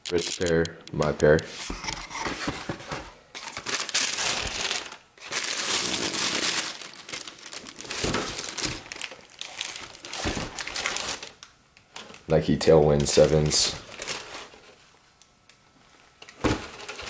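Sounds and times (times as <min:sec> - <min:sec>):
tissue paper crinkling: 0:03.4 - 0:11.4, 0:13.2 - 0:14.8.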